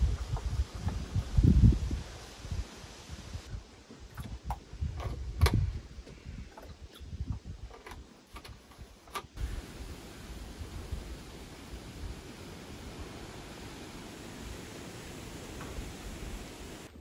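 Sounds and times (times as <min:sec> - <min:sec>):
steady hiss: 0:00.0 - 0:03.5, 0:09.3 - 0:17.0.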